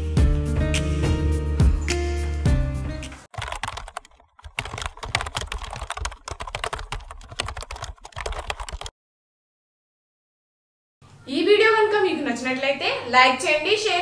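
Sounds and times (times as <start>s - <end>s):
keyboard typing clicks: 3.3s - 8.9s.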